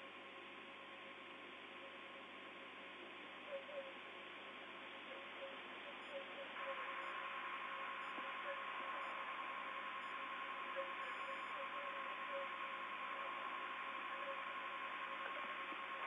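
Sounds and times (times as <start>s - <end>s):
radio hiss: 0.0s - 16.0s
steady radio tone: 3.3s - 16.0s.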